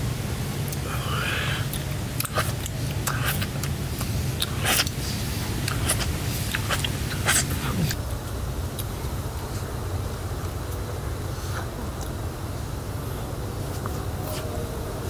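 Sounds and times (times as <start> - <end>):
steady low rumble: 0.0 - 15.0
wet mouth smacks and slurps: 1.7 - 5.0, 5.6 - 8.0.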